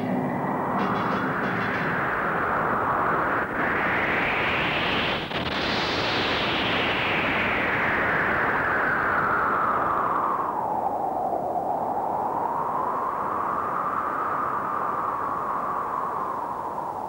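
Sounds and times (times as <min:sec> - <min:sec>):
loud rushing roar: 0:00.0 - 0:05.0.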